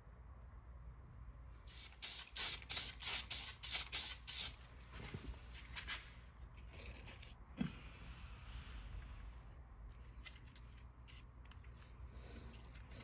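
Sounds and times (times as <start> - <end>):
spray paint hissing bursts: 1.7 - 4.6.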